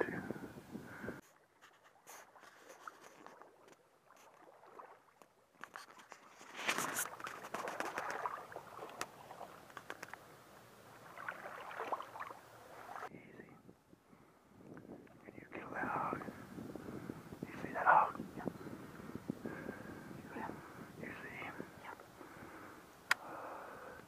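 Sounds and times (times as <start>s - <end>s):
footsteps wading through water: 1.2s - 10.2s, 10.9s - 13.1s
small clicks: 9.7s - 10.2s.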